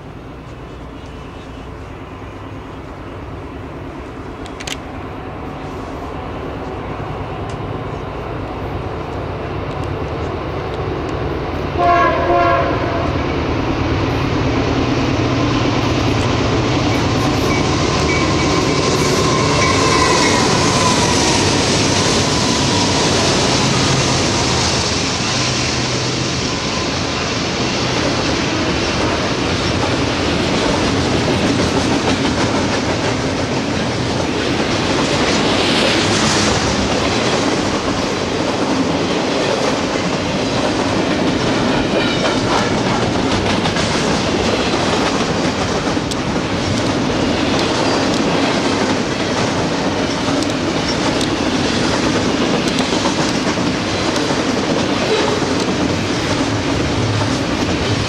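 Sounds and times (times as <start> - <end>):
freight train wheels rumbling: 0.0 - 58.0
train wheels clickety-clack: 8.9 - 58.0.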